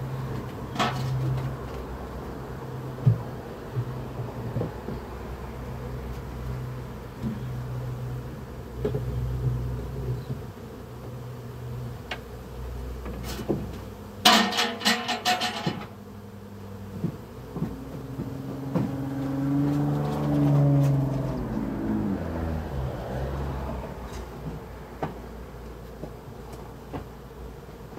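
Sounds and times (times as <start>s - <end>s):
honey bees buzzing: 0.0s - 27.9s
knocks of wooden hive boxes: 3.0s - 5.1s, 13.0s - 16.0s, 16.8s - 21.6s, 24.1s - 27.9s.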